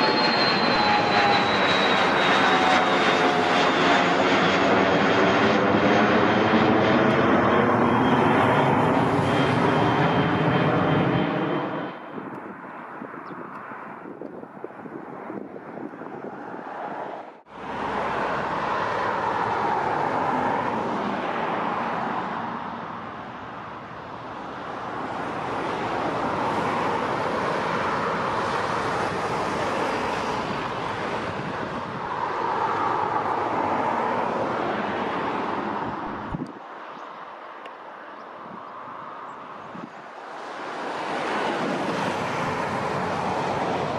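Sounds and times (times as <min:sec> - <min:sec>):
jet engines roaring: 0:00.0 - 0:43.9
wind rumbling on microphone: 0:07.8 - 0:21.6, 0:24.5 - 0:37.2, 0:38.2 - 0:43.9.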